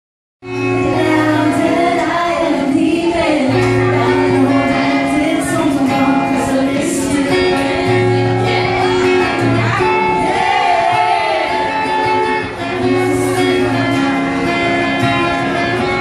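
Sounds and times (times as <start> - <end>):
acoustic guitar chords: 0.4 - 16.0
woman singing into a microphone: 0.6 - 10.3.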